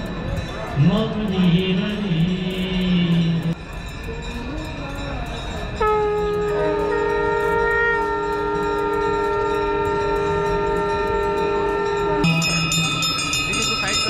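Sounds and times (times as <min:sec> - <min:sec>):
bells ringing: 0:00.0 - 0:14.0
conch shells blowing: 0:05.8 - 0:12.6.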